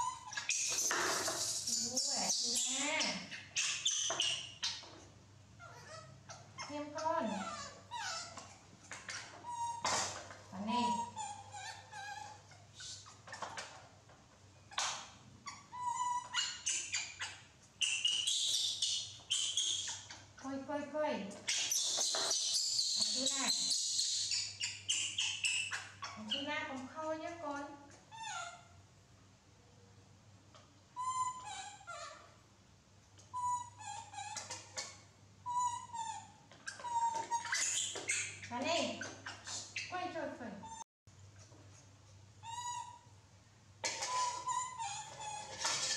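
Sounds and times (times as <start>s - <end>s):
baby monkeys squeaking: 0.0s - 5.0s, 5.6s - 13.8s, 14.7s - 20.4s, 21.3s - 27.5s, 28.1s - 28.8s, 31.0s - 32.4s, 33.2s - 40.0s, 42.4s - 43.1s, 43.8s - 45.9s.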